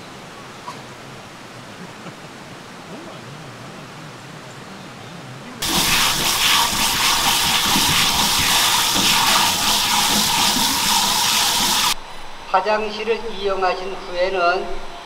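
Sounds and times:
tap water spraying into strainer: 0:05.6 - 0:12.0.

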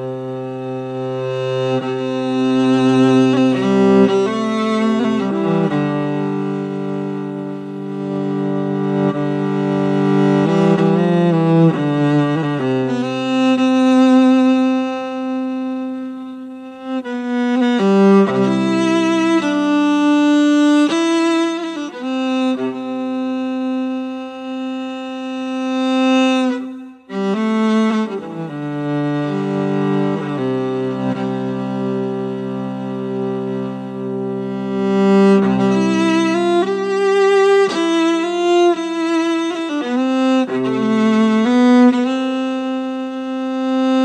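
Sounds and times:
bowed strings playing held notes: 0:00.0 - 0:44.0.

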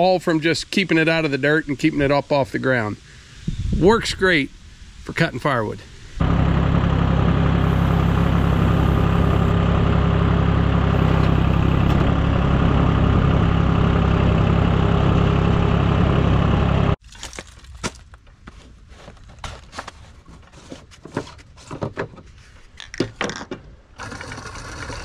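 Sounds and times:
engine running steadily: 0:06.2 - 0:17.0.

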